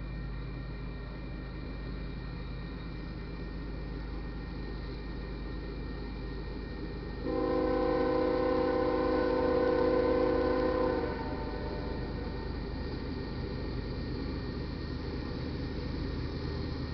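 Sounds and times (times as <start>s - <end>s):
locomotive horn: 7.2s - 12.3s.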